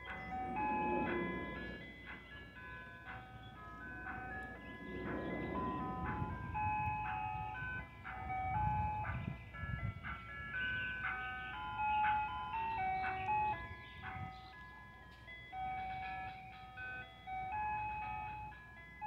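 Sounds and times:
ice cream truck jingle: 0.0 - 19.0
low rumble: 0.2 - 2.3, 3.5 - 7.0.

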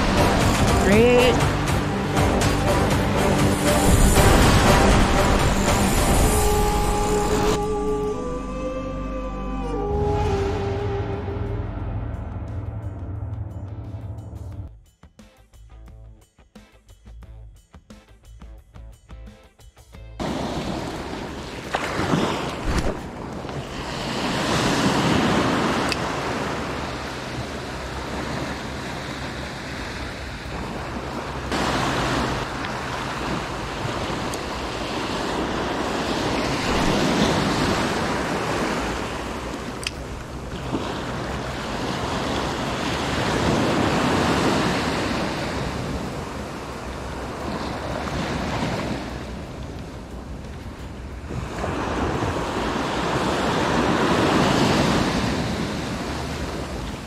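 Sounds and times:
surf breaking on a beach: 0.0 - 1.7, 20.2 - 57.0.

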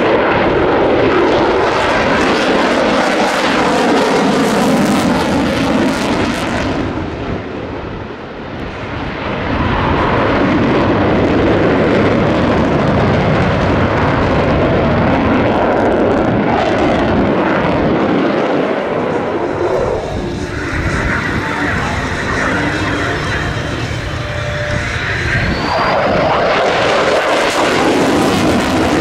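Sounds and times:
jet flying overhead: 0.0 - 29.0.

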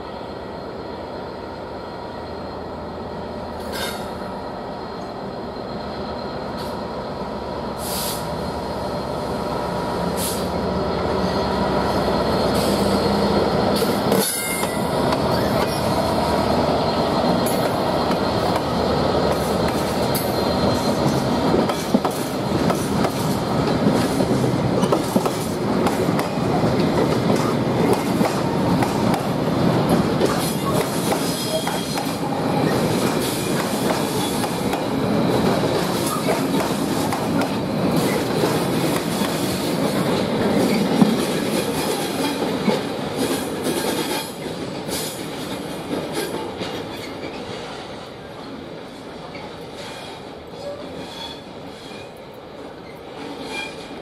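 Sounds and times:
diesel locomotive engine: 0.0 - 54.0
wagons rumbling over rail joints: 10.2 - 54.0
wheel squeal: 14.2 - 18.4, 49.8 - 52.2.

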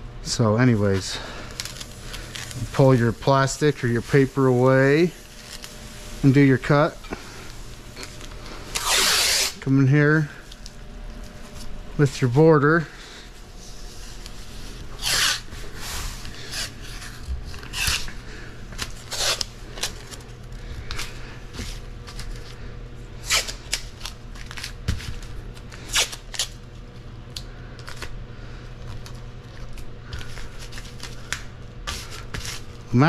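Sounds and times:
steady low hum: 0.0 - 33.0
masking tape ripping and rustling: 0.7 - 7.0, 7.9 - 9.7, 14.0 - 22.6, 23.2 - 26.7, 28.8 - 33.0.

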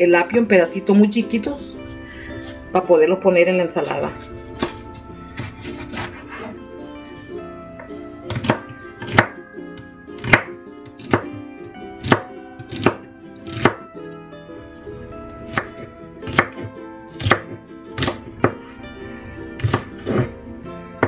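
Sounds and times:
knife chopping on wooden board: 4.6 - 4.8, 5.4 - 6.5, 8.3 - 9.4, 10.2 - 11.3, 12.0 - 13.8, 15.5 - 16.6, 17.2 - 18.2, 19.6 - 20.3.

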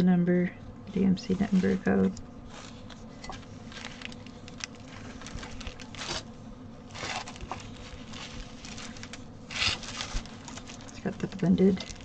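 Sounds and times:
stiff fabric rustling and crinkling: 1.2 - 12.0.

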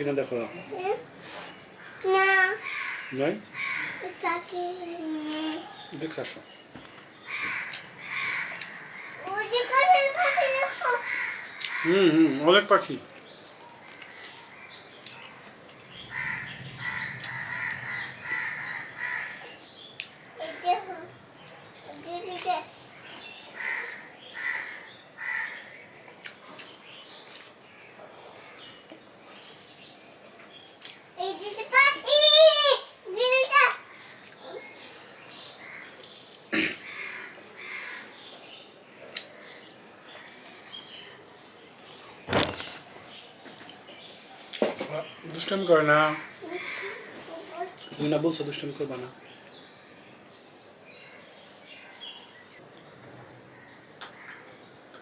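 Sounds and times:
crows cawing: 1.8 - 4.4, 7.2 - 12.5, 16.0 - 21.1, 23.5 - 25.8, 35.6 - 38.2, 45.2 - 47.6, 53.5 - 54.5.

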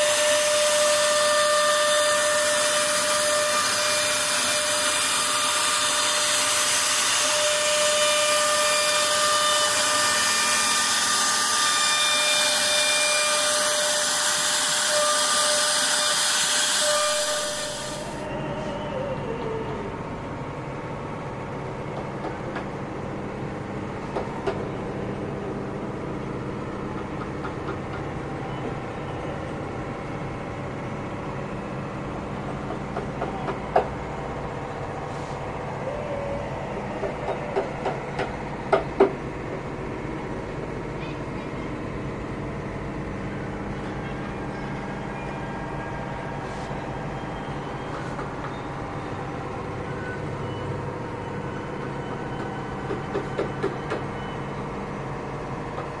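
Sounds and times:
router spindle high whine: 0.0 - 20.5.

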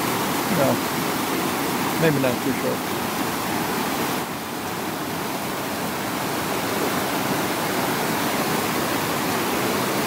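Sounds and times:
stream rushing over rocks: 0.0 - 10.0.

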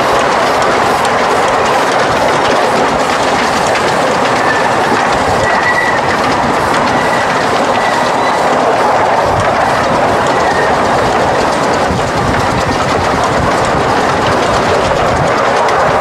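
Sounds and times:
train carriages clattering on track: 0.0 - 16.0
high wheel squeal: 4.2 - 11.2.

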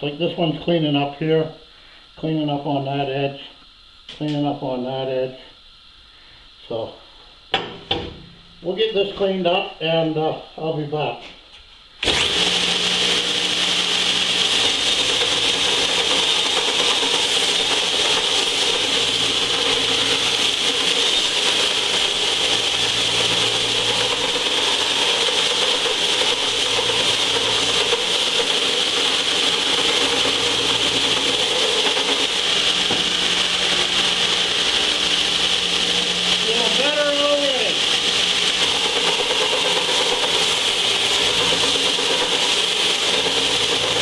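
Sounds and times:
belt sander sanding metal: 12.0 - 44.0.

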